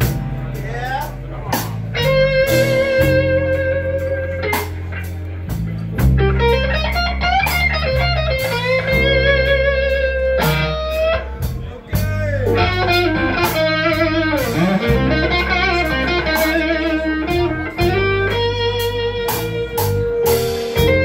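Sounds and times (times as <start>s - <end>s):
bass line: 0.0s - 21.0s
electric guitar solo: 1.9s - 5.5s, 6.2s - 11.5s, 12.4s - 21.0s.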